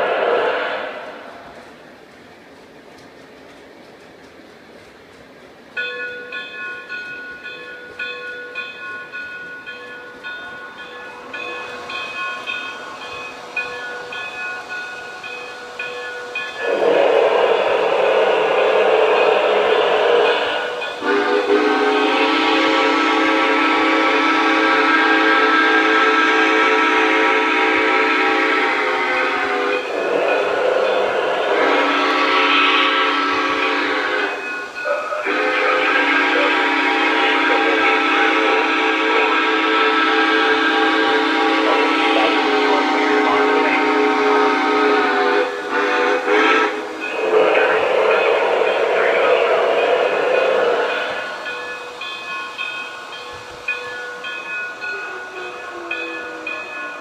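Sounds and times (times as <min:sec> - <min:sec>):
steam whistle blast: 0:00.0 - 0:01.3, 0:16.6 - 0:51.4
loud rush of hiss: 0:00.0 - 0:03.3, 0:11.1 - 0:55.6
model locomotive idling sounds: 0:00.0 - 0:57.0.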